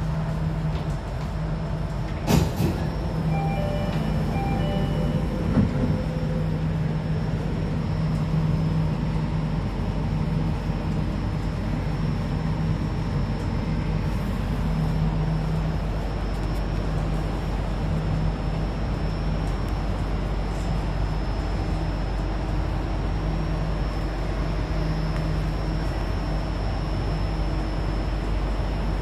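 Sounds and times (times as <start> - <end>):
train cabin rumble: 0.0 - 26.8
faint high whine: 2.9 - 8.8.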